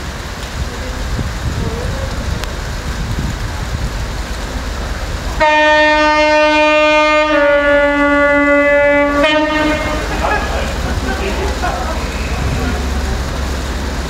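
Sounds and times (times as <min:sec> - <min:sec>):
train rumble: 0:00.0 - 0:14.0
train air horn blast: 0:05.4 - 0:10.8.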